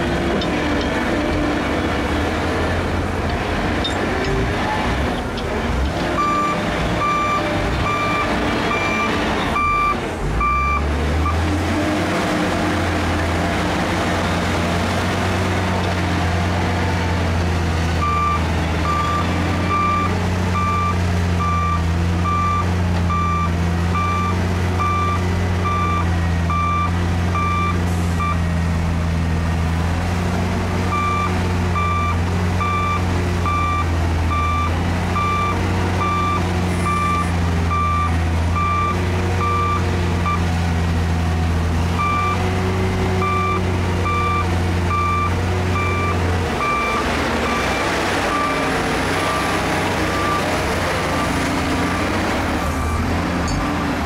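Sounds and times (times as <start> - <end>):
bulldozer diesel engines running: 0.0 - 54.0
reversing alarm beeping: 6.2 - 11.4, 18.0 - 28.4, 30.9 - 40.5, 43.2 - 52.0.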